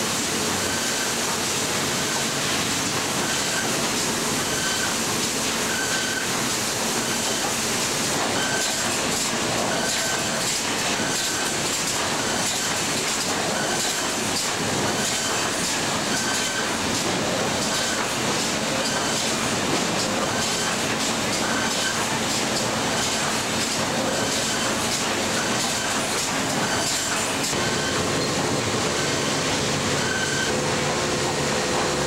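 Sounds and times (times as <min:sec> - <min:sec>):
sawmill motors and conveyors: 0:00.0 - 0:32.0
short high squeal: 0:03.2 - 0:03.8, 0:04.4 - 0:07.4, 0:08.2 - 0:09.0, 0:25.4 - 0:30.6.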